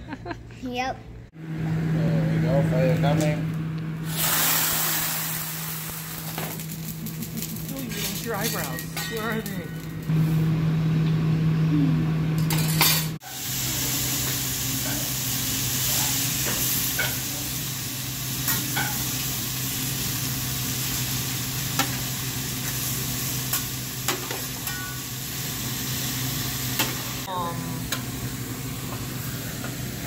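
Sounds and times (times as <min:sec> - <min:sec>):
food sizzling on griddle: 0:04.0 - 0:09.6, 0:13.2 - 0:30.0.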